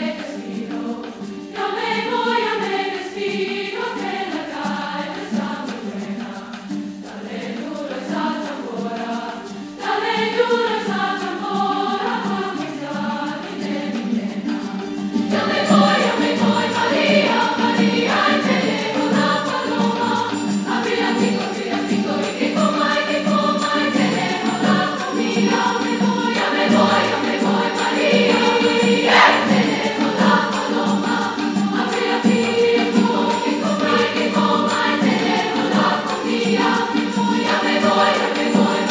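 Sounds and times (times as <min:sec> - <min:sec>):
light percussion: 0:00.0 - 0:38.9
treble choir singing: 0:00.0 - 0:38.9
guitar: 0:11.2 - 0:38.9.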